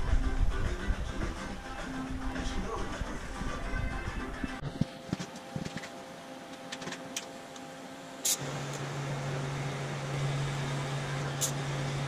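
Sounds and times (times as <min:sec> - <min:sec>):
low welder hum: 0:00.0 - 0:12.0
welding hiss: 0:08.2 - 0:08.8, 0:11.2 - 0:12.0.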